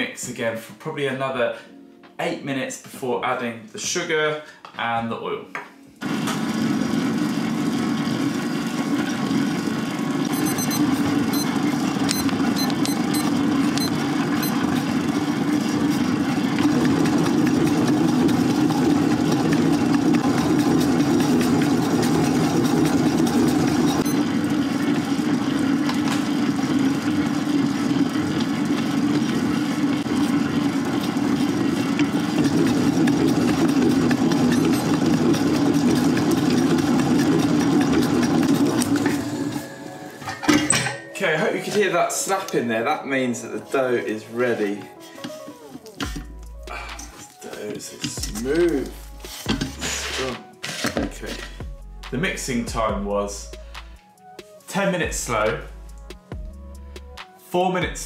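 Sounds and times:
stand mixer kneading dough: 6.0 - 40.6, 44.4 - 51.5.

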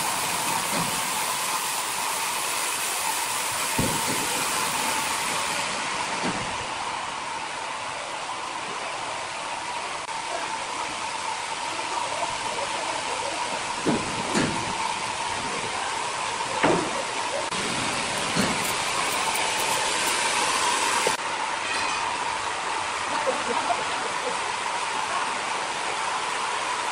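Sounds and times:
band saw cutting log: 17.5 - 21.2.

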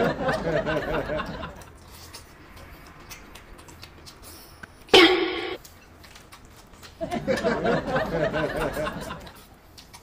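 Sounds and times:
chewing and slurping noodles: 1.6 - 4.9.

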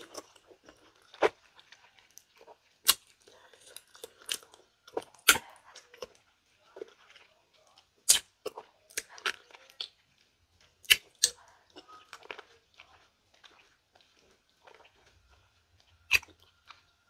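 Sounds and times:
wet chewing and sucking: 0.0 - 17.0.

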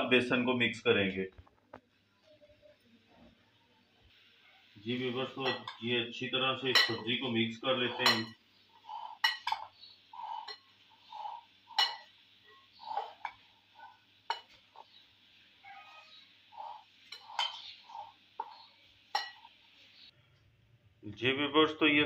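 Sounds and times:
spoon clinking on glass: 5.4 - 5.8, 6.6 - 7.2, 7.9 - 8.4, 9.2 - 9.7, 11.8 - 12.1, 14.3 - 14.6, 17.0 - 19.5.

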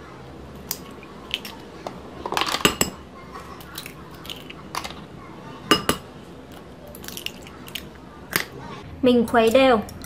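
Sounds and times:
eggs cracking on a bowl: 0.6 - 5.0, 5.7 - 8.6.

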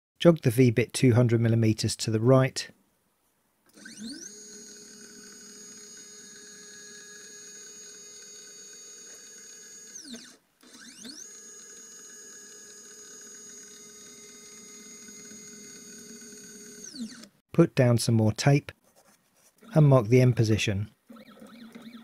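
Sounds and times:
stepper motor whine: 3.7 - 17.3.

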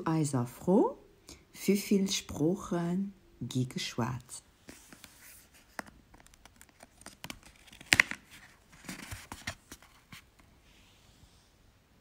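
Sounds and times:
paper rustling and clicks: 4.8 - 10.3.

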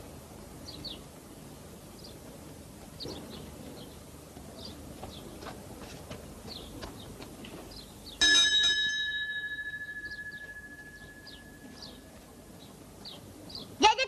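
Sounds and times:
metal bell ringing: 8.2 - 12.2
faint bird chirps: 9.9 - 13.8.

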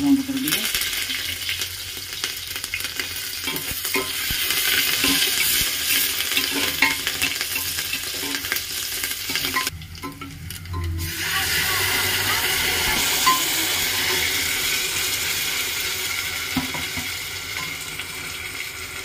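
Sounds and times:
spices sizzling in hot oil: 0.0 - 19.0
metal spatula scraping pan: 4.8 - 8.5, 10.9 - 15.0.

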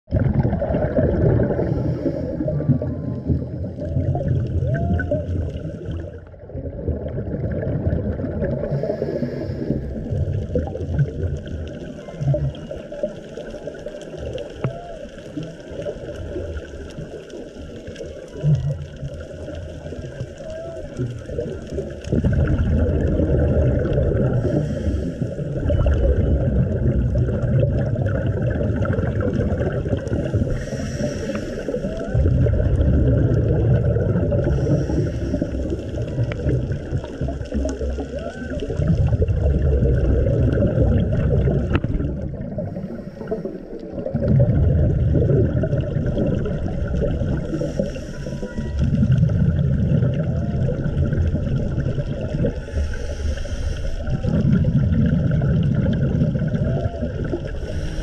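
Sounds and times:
exhaled bubbles gurgling: 0.0 - 58.0
regulator hiss on inhale: 1.5 - 2.6, 8.6 - 10.2, 24.3 - 25.6, 30.2 - 32.0, 34.4 - 35.9, 42.6 - 43.9, 47.3 - 48.8, 52.6 - 54.1, 57.5 - 58.0.

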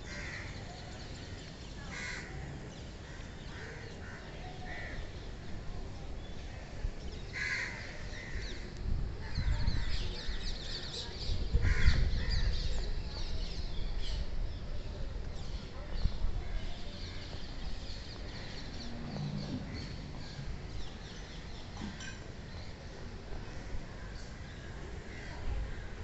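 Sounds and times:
crows cawing: 1.9 - 2.3, 7.4 - 8.4
wind rumble on microphone: 5.5 - 21.6.

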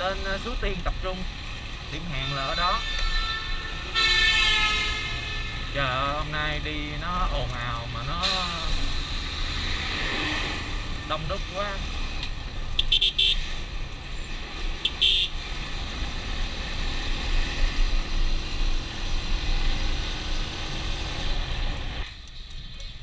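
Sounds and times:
wind: 0.0 - 23.0
horn beeps: 14.8 - 15.3.

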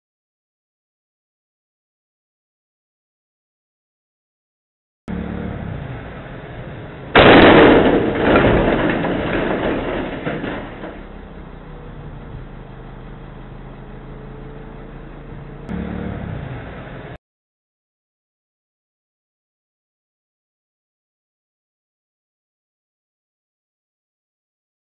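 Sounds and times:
truck engine running: 5.1 - 17.2
truck crashing into steel beam: 5.8 - 11.9.

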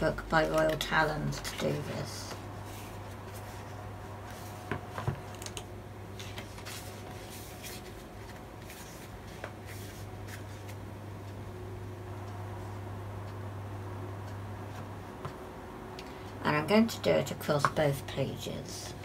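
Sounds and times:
steady low hum: 0.0 - 19.0
sketchbook pages rustling: 0.1 - 10.8.

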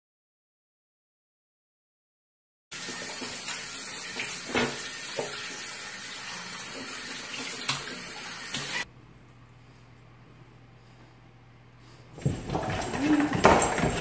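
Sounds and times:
running water: 2.7 - 8.8.

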